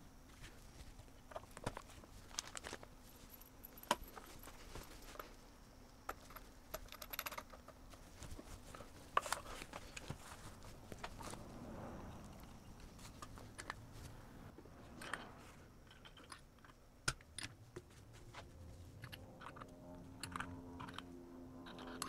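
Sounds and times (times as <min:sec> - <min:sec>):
plastic and metal parts clicking: 0:19.0 - 0:22.0.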